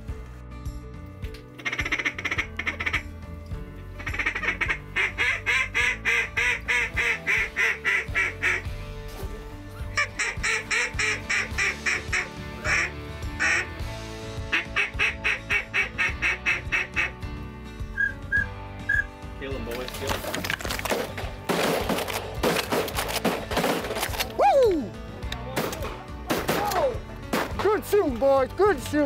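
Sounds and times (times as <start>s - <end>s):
duck call quacks: 1.6s - 3.0s, 4.0s - 8.7s, 10.0s - 13.7s, 14.5s - 17.2s.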